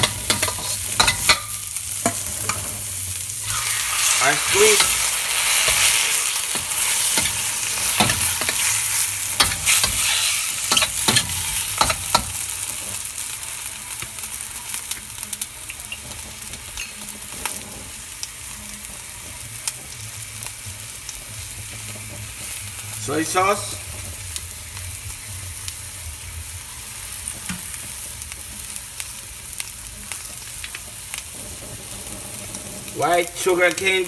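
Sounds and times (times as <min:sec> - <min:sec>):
spatula scraping a wok: 0:00.0 - 0:13.0, 0:30.7 - 0:32.9
food sizzling in hot oil: 0:00.0 - 0:34.0.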